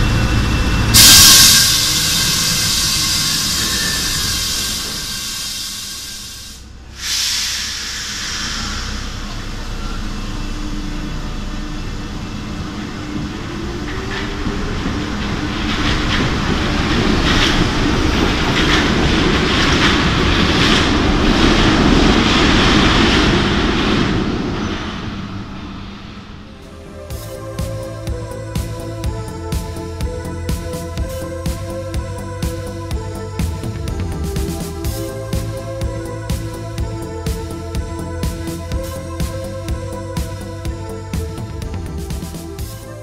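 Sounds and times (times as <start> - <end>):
train motor whine: 0.0 - 43.0
wheels clacking over rail joints: 12.6 - 25.4.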